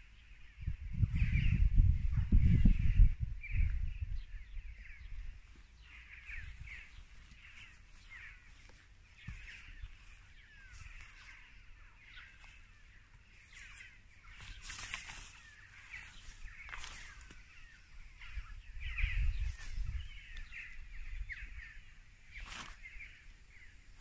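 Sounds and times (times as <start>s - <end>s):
low rumble on microphone: 0.0s - 14.5s
birds chirping: 0.0s - 24.0s.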